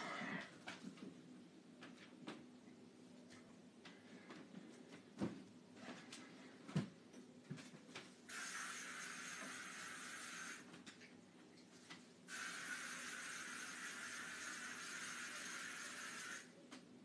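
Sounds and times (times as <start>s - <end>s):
steady hiss: 8.3s - 10.7s, 12.2s - 16.5s.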